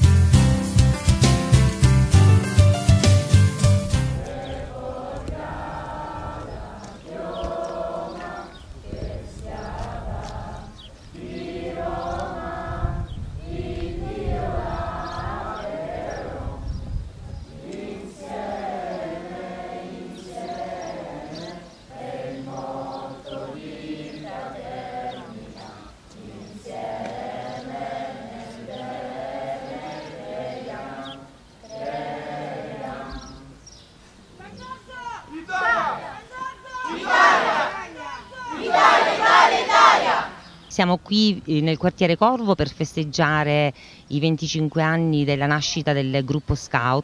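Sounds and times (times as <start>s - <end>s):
young voices singing in unison: 4.0s - 34.7s, 35.3s - 40.7s.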